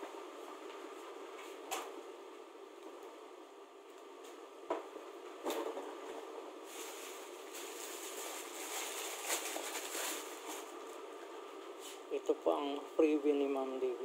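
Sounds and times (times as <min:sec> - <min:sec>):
steady low hum: 0:00.0 - 0:14.0
packaging rustling: 0:06.7 - 0:10.8.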